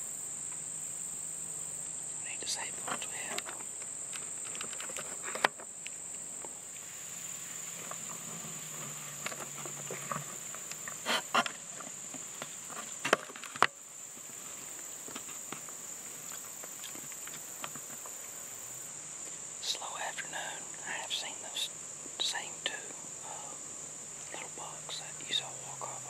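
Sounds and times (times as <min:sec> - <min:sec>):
insects chirping: 0:00.0 - 0:26.0
camera handling rustles and clicks: 0:04.1 - 0:05.6.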